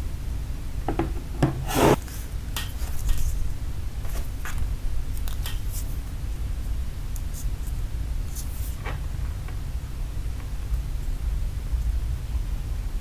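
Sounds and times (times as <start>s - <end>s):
rubbing scrape: 1.6s - 2.2s.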